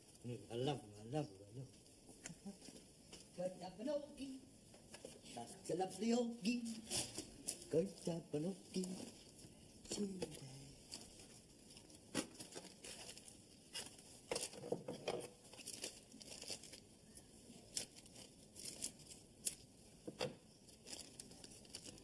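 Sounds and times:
paper crinkling and rustling: 0:06.7 - 0:19.7, 0:20.6 - 0:22.0.

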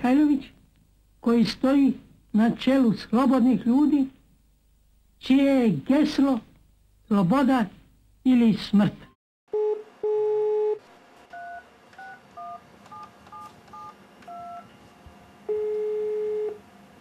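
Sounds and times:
telephone ringing tone: 0:09.5 - 0:14.6, 0:15.5 - 0:16.6
telephone dial tone: 0:09.6 - 0:14.6, 0:15.5 - 0:16.6.

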